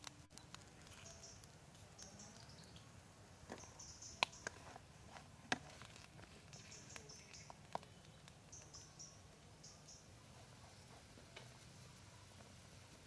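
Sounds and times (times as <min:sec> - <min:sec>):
faint high chirps: 0:00.3 - 0:02.9, 0:03.5 - 0:04.6, 0:06.5 - 0:12.5.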